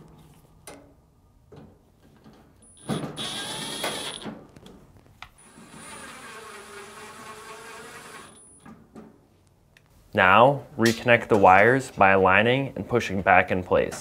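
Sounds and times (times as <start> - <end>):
power screwdriver motor whining: 3.2 - 4.2, 5.4 - 8.4.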